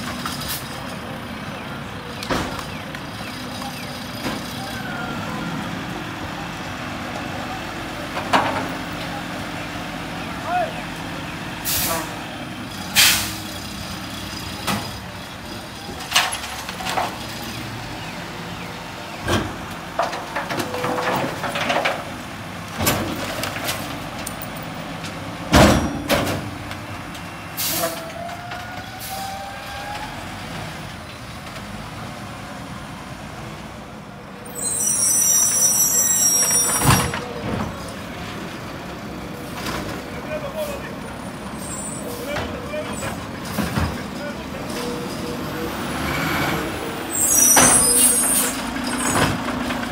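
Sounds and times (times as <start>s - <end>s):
air brake hiss: 13.0s - 13.4s.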